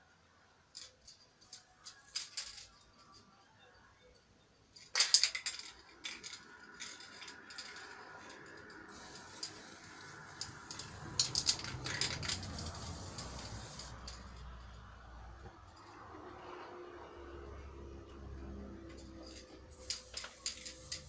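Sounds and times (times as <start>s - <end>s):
paint cans and tools rattling: 0.7s - 3.2s, 4.8s - 14.7s, 18.8s - 21.0s
faint steady hiss: 8.8s - 15.3s, 19.6s - 21.0s.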